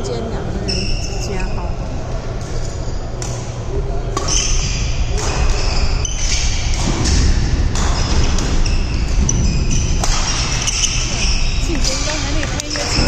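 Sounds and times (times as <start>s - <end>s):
rackets striking shuttlecock: 10.0s - 11.0s.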